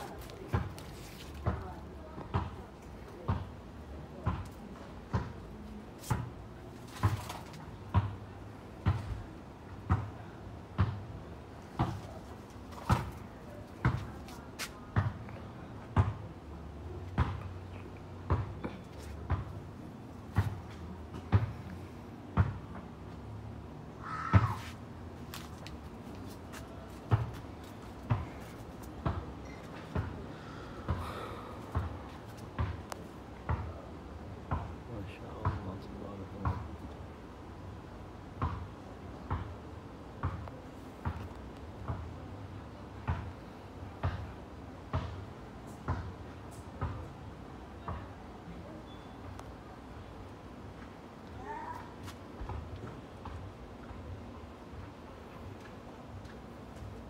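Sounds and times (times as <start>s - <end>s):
crow cawing: 24.0s - 24.6s
footsteps: 24.3s - 30.2s.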